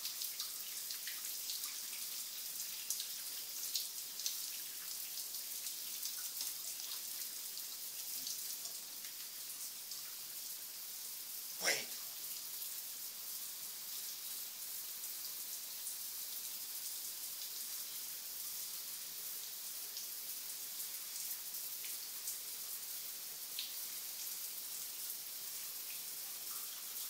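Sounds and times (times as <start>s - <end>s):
faint water drips: 0.0s - 27.0s.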